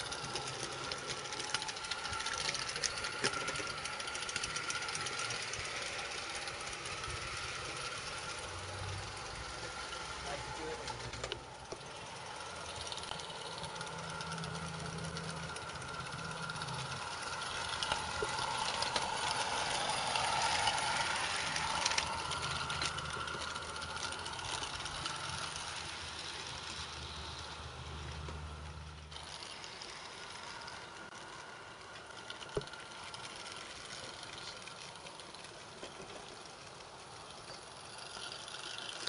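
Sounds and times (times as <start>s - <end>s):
steam locomotive hissing: 0.0s - 33.8s
low steady drone: 0.0s - 36.6s
wheels clicking on track: 0.0s - 39.0s.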